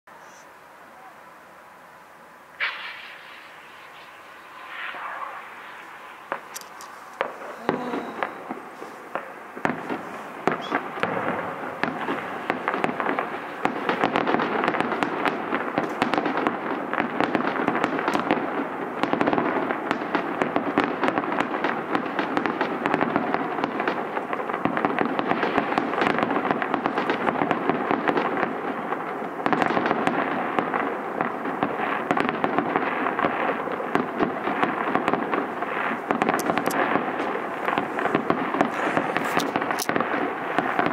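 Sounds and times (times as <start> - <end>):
fireworks popping and crackling: 2.5 - 40.9.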